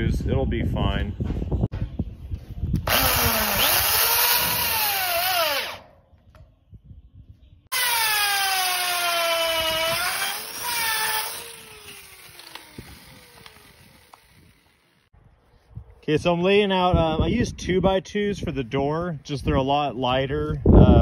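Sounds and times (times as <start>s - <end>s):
drill boring into wood: 2.8s - 5.8s, 7.7s - 15.1s
drill driving screw into metal: 2.8s - 5.8s, 7.7s - 14.8s.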